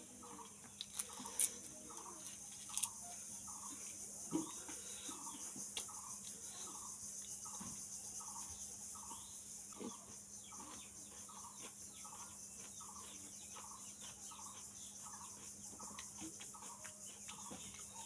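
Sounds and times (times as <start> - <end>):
crunchy chewing of raw onion: 0.0 - 7.5, 9.6 - 18.0.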